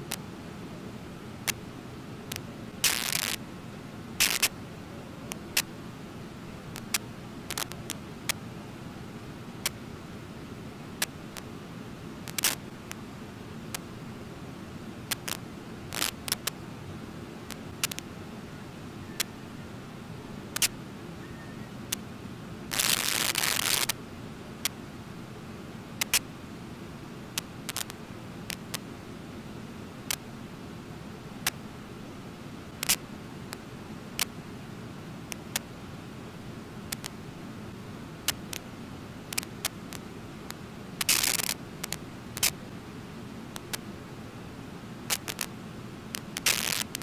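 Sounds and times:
sharp clicks: 12.3 - 12.6, 20.6 - 20.8, 26.0 - 26.2, 36.9 - 37.2, 41.0 - 42.6, 43.6 - 43.8, 46.2 - 47.0
short rustling bursts: 22.7 - 24.0.

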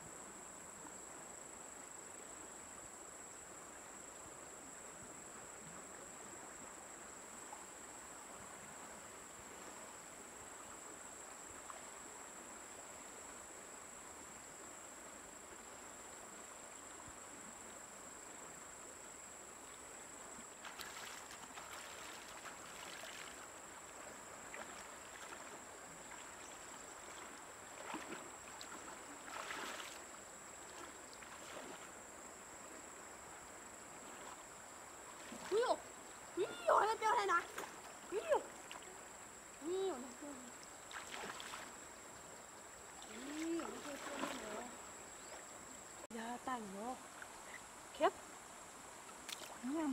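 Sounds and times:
faint river ambience: 0.0 - 49.9
high insect call: 0.0 - 49.9
person wading through water: 20.5 - 32.0, 34.0 - 36.0, 36.7 - 41.9, 43.0 - 44.9.

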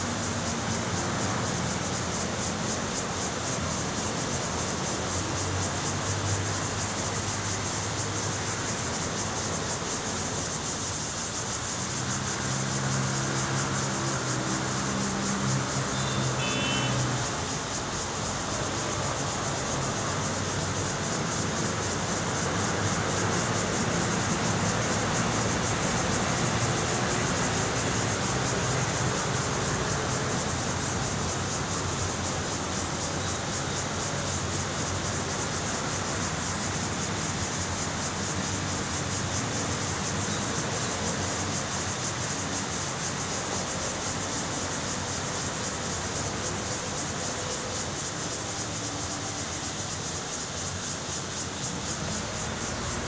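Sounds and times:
high-pitched insect buzzing: 14.5 - 17.2.

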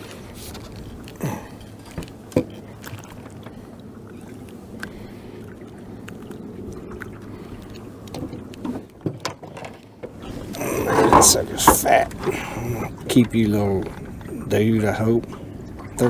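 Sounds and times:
steady low rumble: 0.0 - 9.0
knocks and clicks in a boat: 0.0 - 16.0.

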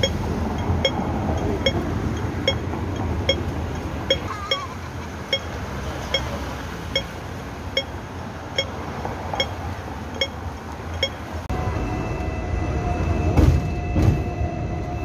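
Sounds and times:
crossing signal electronic pips: 0.0 - 4.7, 5.3 - 8.0, 8.6 - 11.3
traffic hum: 0.0 - 15.0.

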